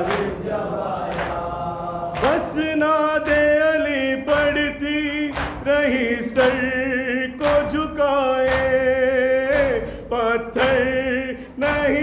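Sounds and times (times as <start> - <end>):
group of men chanting: 0.0 - 6.7
man reciting: 0.0 - 12.0
hand slaps on chest: 5.3 - 5.7, 8.4 - 8.8.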